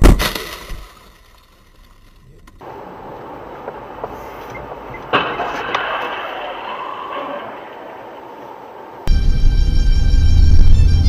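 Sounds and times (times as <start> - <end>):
car driving noise: 2.4 - 11.0
car collision: 2.6 - 9.1.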